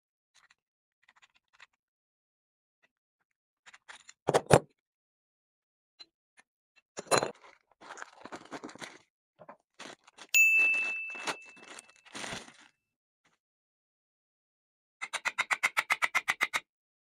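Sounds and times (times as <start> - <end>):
plastic bag and cardboard crinkling: 7.4 - 12.7
bell-like ding: 10.4 - 11.6.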